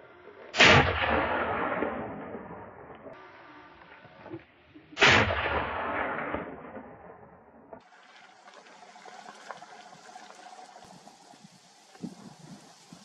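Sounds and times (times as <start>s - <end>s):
rifle shot echoing: 0.6s - 3.2s, 5.0s - 7.8s
faint background hiss: 7.9s - 13.0s.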